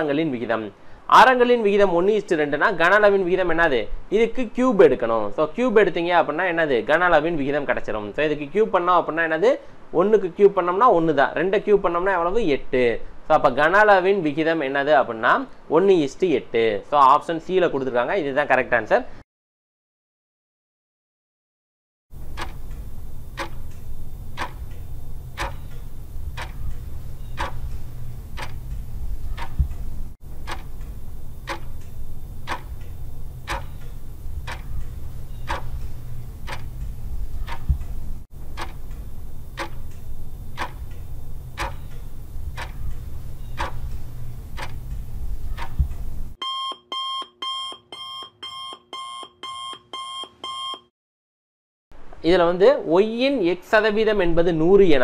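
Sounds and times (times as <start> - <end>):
clock ticking: 22.2 - 46.4
rapid alarm beeping: 22.3 - 29.8, 30.4 - 37.9, 45.6 - 50.9.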